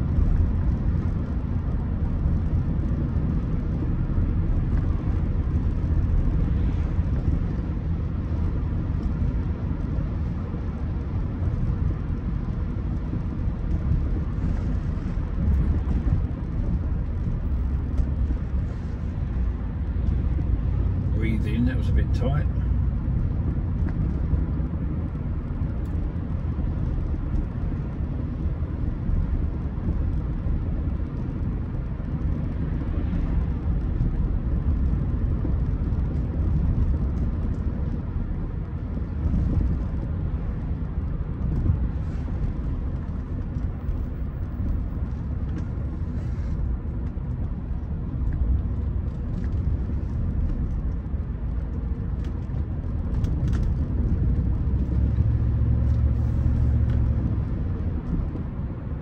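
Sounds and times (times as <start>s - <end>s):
car road and engine rumble: 0.0s - 59.0s.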